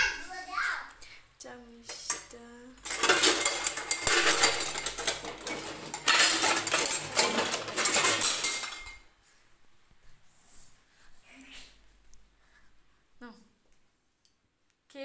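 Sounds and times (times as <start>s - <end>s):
metal spoons and dishes clattering: 1.9s - 9.1s.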